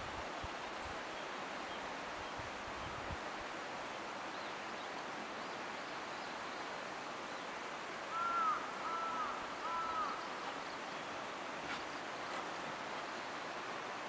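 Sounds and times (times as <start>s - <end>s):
wind hiss: 0.0s - 14.0s.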